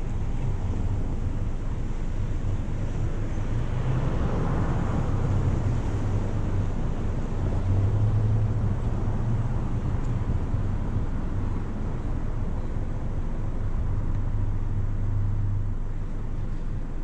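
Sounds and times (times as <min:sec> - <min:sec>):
car engine idling: 0:00.0 - 0:03.6, 0:04.8 - 0:17.0
cars driving past: 0:00.0 - 0:17.0.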